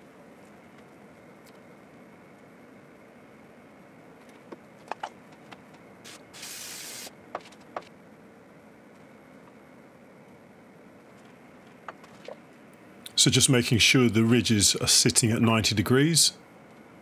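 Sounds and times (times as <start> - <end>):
aerosol spray hissing: 6.1 - 7.1.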